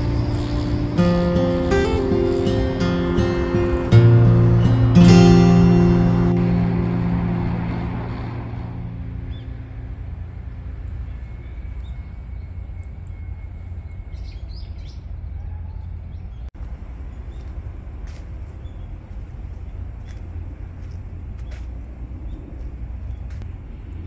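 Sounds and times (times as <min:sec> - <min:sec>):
background music: 0:00.0 - 0:09.4
distant traffic rumble: 0:00.0 - 0:24.0
bird chirps: 0:09.2 - 0:09.7, 0:10.9 - 0:16.5.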